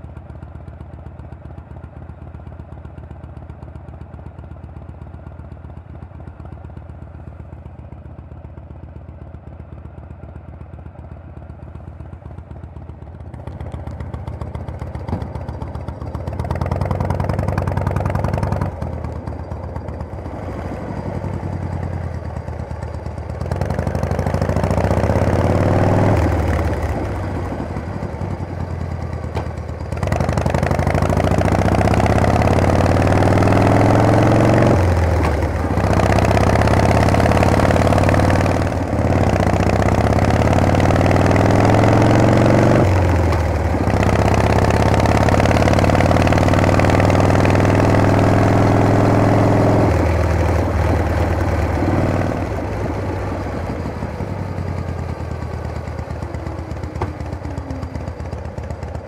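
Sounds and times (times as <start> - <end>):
motorcycle engine revving: 11.9 - 59.0.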